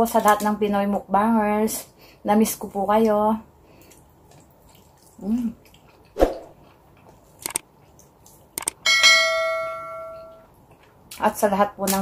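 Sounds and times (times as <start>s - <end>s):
mouse clicks: 7.4s - 7.6s, 8.6s - 8.8s
bright bell chime: 8.9s - 10.4s.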